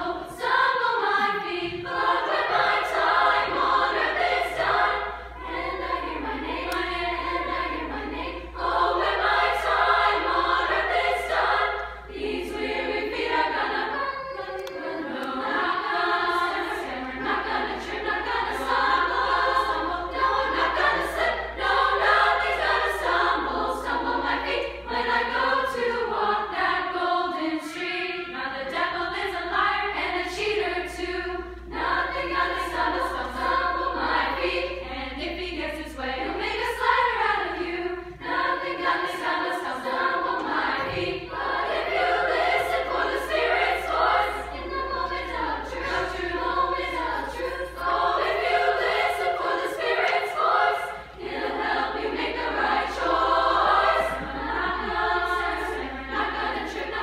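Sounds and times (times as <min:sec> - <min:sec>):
women's choir singing: 0:00.0 - 0:57.0.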